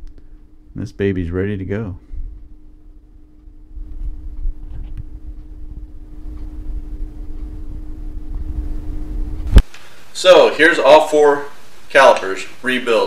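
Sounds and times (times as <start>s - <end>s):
low background rumble: 0.0s - 10.2s
steady hum: 0.0s - 13.0s.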